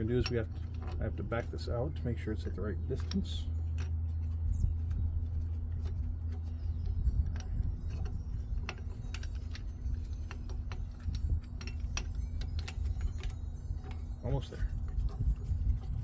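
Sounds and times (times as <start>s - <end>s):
metal tool clicks and clinks: 0.0s - 16.0s
steady low hum: 0.0s - 16.0s.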